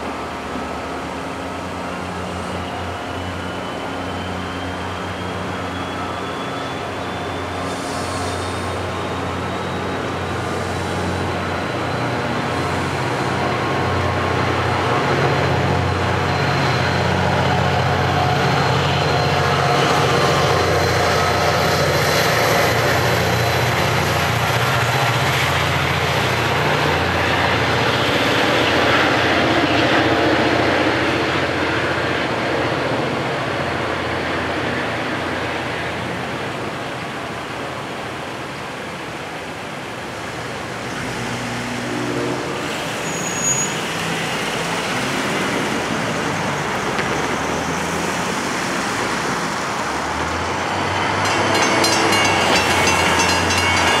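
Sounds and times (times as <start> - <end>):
diesel locomotive running: 0.0 - 54.0
train coaches rolling by: 0.0 - 54.0.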